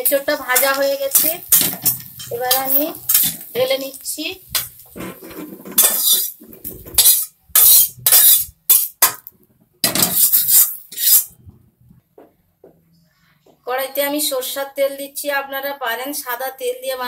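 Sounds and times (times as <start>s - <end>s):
metal spatula scraping a pan: 0.1s - 9.0s, 9.8s - 11.4s.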